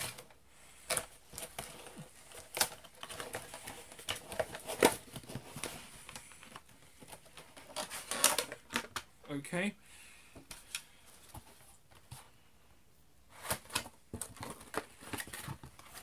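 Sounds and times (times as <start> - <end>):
packaging crinkling and rustling: 0.0 - 9.1, 13.4 - 16.0.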